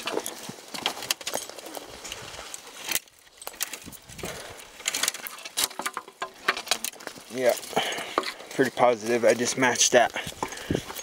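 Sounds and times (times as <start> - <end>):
twigs snapping: 0.0 - 9.4
branches rustling against clothing: 0.0 - 11.0
footsteps crunching on forest litter: 7.0 - 11.0.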